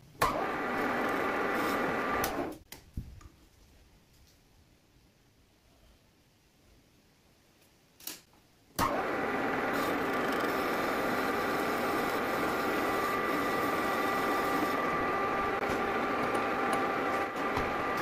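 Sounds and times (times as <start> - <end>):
lathe motor whining: 0.2 - 2.5, 8.8 - 18.0.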